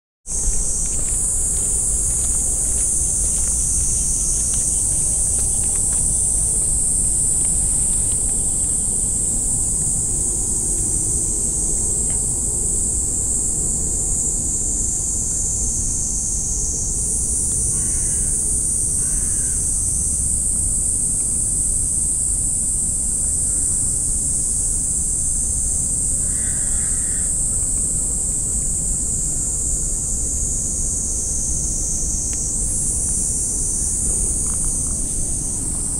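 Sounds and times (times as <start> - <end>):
wind on microphone: 0.3 - 17.4
insects chorus: 0.3 - 35.9.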